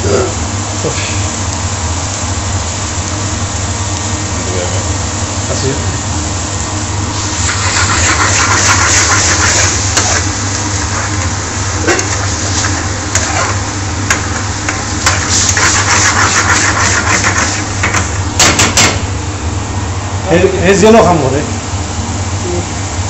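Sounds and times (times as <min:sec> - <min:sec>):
steady low hum: 0:00.0 - 0:23.0
sauce sizzling in a frying pan: 0:00.3 - 0:18.4
ladle knocking on pan: 0:17.8 - 0:19.0.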